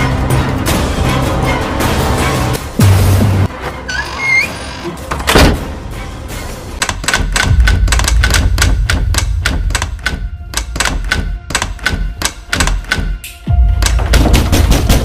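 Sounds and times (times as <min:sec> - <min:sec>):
rapid clicking: 0:06.8 - 0:13.1.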